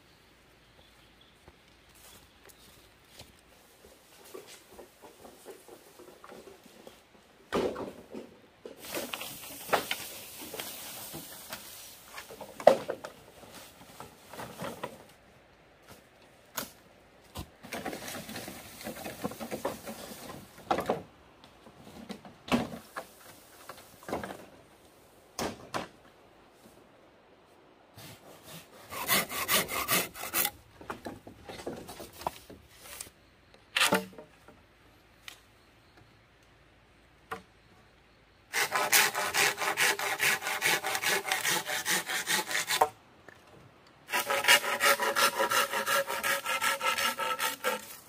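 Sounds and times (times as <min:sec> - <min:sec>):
rustling through leafy undergrowth: 0:08.8 - 0:15.3.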